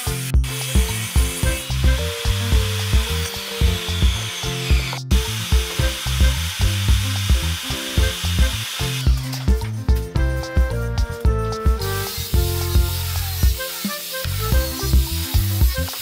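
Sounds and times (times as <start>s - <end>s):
music with low bass beat: 0.1s - 16.0s
scratchy hiss: 12.1s - 14.5s.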